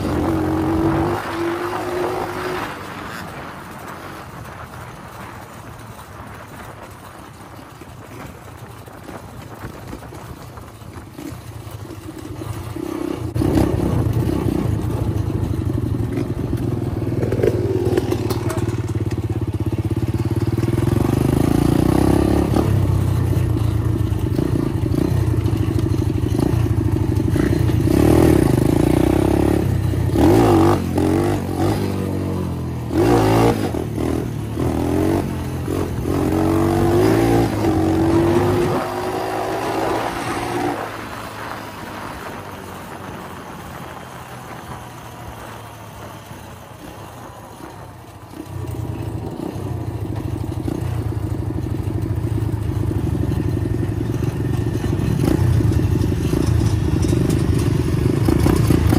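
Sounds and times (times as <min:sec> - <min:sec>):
dirt bike engine revving: 0:00.0 - 0:03.6, 0:19.9 - 0:23.0, 0:26.3 - 0:42.1.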